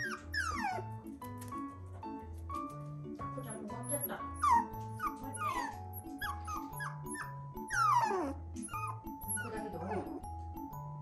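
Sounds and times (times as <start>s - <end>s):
puppy whining: 0.0s - 1.0s, 3.8s - 10.2s.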